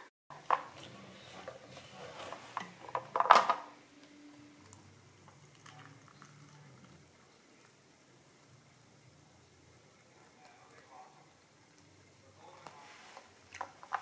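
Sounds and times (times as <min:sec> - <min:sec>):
kitchenware clinks and knocks: 0:01.4 - 0:03.7
hot water pouring into cup: 0:04.5 - 0:14.0.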